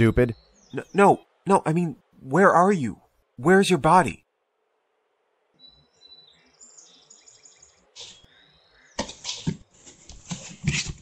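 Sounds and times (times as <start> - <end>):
faint high chirping calls: 0.0 - 2.6, 5.5 - 9.5.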